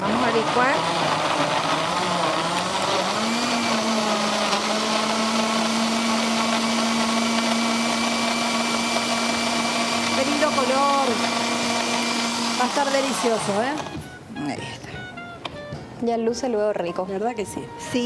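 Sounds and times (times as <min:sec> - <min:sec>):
blender chopping vegetables: 0:00.0 - 0:14.0.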